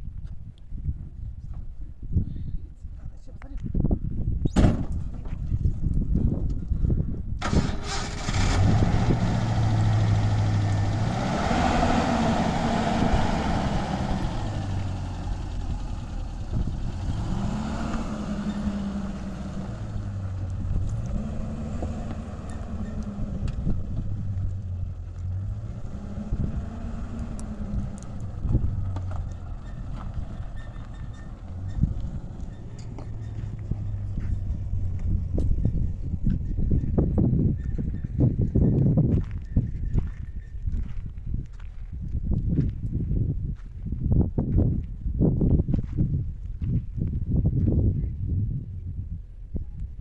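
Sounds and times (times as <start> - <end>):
pickup truck engine revving: 7.4 - 34.1.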